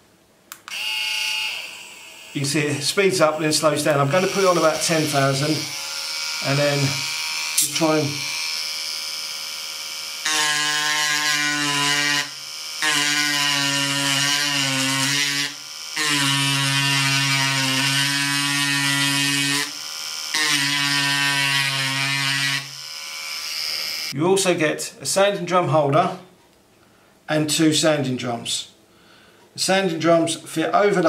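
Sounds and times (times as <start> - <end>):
engraving bit buzzing on metal: 0.7 - 24.2
mini engraver whirring: 0.7 - 24.2.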